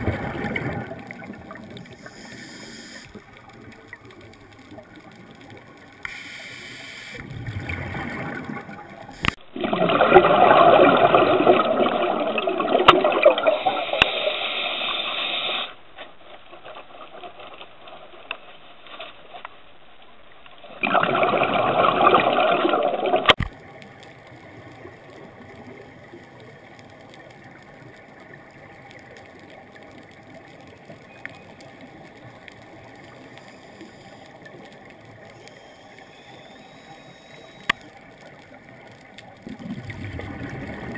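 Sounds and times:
faint underwater hiss: 0.0 - 9.4, 13.4 - 15.9, 23.5 - 40.9
exhaled breath bubbling underwater: 39.4 - 40.9.

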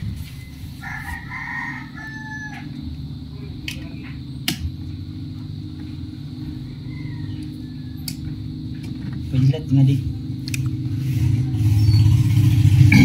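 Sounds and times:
steady low hum: 0.0 - 13.0
rooster crowing: 0.4 - 3.2, 6.0 - 8.8.

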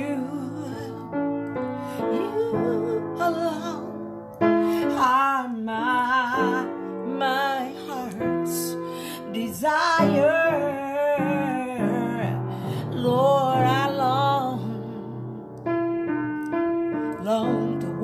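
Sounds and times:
woman singing with vibrato: 0.0 - 1.1, 1.8 - 4.2, 4.8 - 14.7
piano chords: 0.0 - 18.0.

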